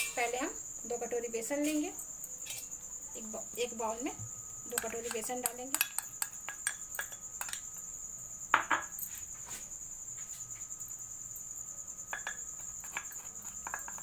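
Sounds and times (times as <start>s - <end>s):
steel spoon clinking on metal bowls: 4.7s - 7.9s, 12.1s - 14.0s.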